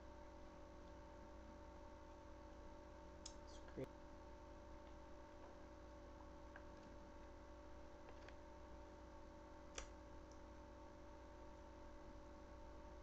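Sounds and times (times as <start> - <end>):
faint hum: 0.0 - 13.0
soft clicks: 3.2 - 3.8, 9.7 - 10.5.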